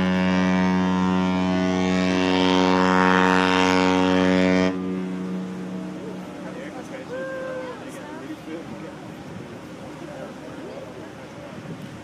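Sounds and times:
ship's horn blast: 0.0s - 8.4s.

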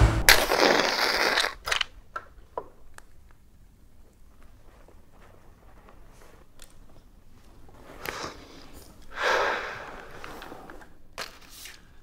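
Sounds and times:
rustling: 2.4s - 12.0s
man exhaling sharply: 9.1s - 10.1s.

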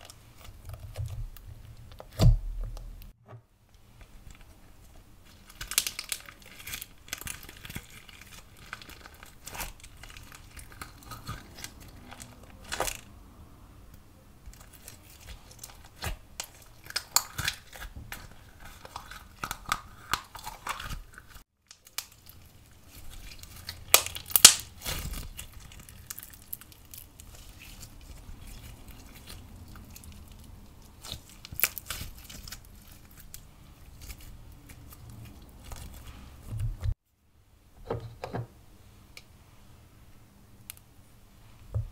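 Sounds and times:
slime crackling and popping: 5.2s - 13.0s, 14.6s - 36.0s.

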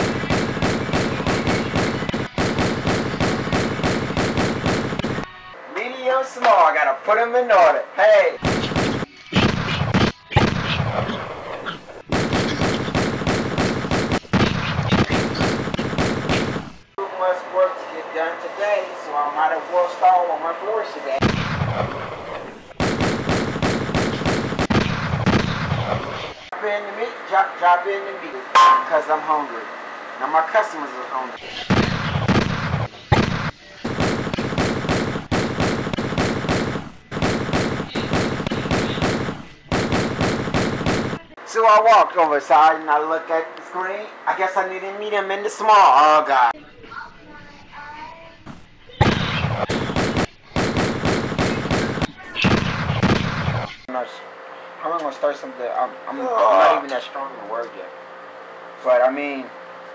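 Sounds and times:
rapid gunfire: 0.0s - 5.3s, 8.4s - 11.4s, 12.0s - 16.9s, 21.2s - 26.4s, 31.5s - 41.4s, 49.0s - 53.9s.

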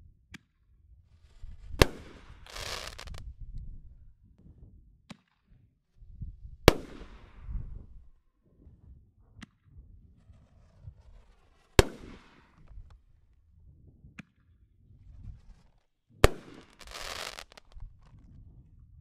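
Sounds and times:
faint firework crack: 1.3s - 3.3s, 6.7s - 8.0s, 11.0s - 13.0s, 15.2s - 18.2s
firework bangs: 1.7s - 3.2s, 6.7s - 7.4s, 11.8s - 12.7s, 16.2s - 17.8s
firework crackling: 1.7s - 3.2s, 16.3s - 17.8s.

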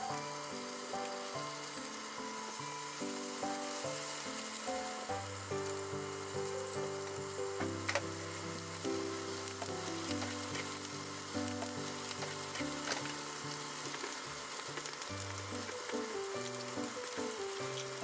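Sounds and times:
patties sizzling in a frying pan: 0.0s - 18.0s.

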